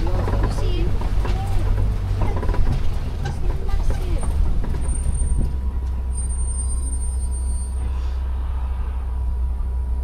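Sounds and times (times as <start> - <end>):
truck rumbling: 0.0 - 10.0.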